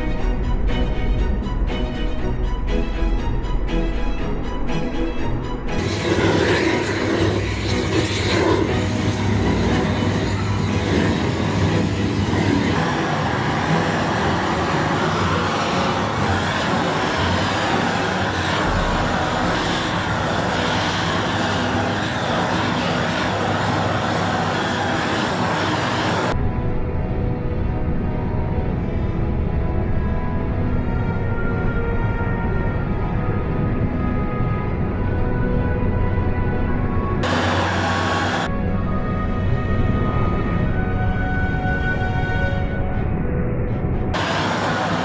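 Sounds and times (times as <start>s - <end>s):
low hum: 0.0s - 45.0s
dense mechanical noise: 5.7s - 31.0s, 37.1s - 38.8s, 43.4s - 45.0s.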